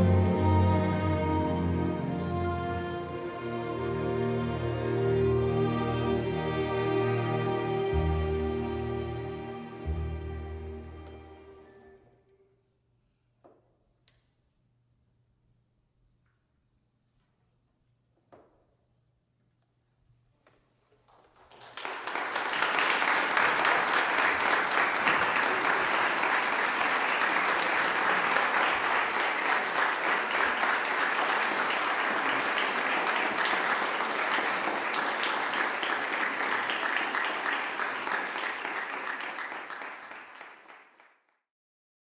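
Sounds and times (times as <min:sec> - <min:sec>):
audience applauding: 0:21.0 - 0:41.4.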